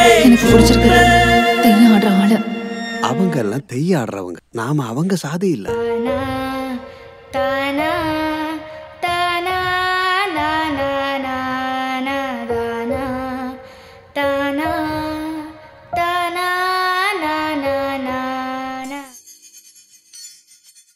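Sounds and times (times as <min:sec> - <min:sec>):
high solo voice singing: 0:00.0 - 0:03.4.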